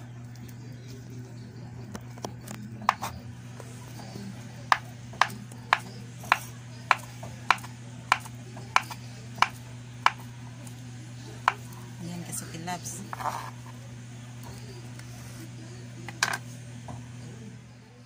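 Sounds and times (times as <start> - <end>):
knife tapping plastic cutting board: 4.7 - 10.2, 11.4 - 11.7.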